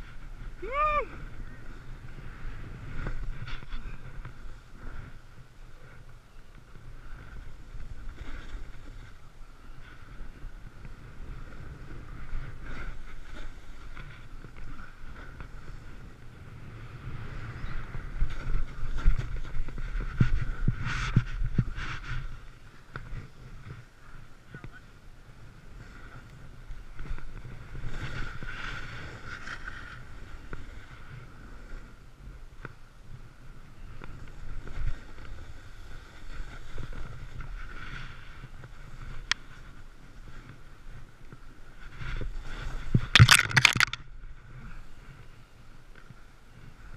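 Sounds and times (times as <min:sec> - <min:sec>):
wind buffeting microphone: 0:00.0 - 0:32.5
snowboard scraping over snow: 0:00.0 - 0:43.2, 0:44.3 - 0:46.9
sharp click: 0:43.2 - 0:44.0.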